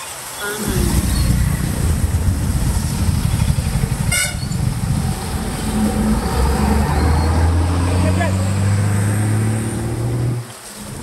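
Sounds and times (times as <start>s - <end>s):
vehicles passing on wet road: 0.0s - 11.0s
horn toot: 4.0s - 4.6s.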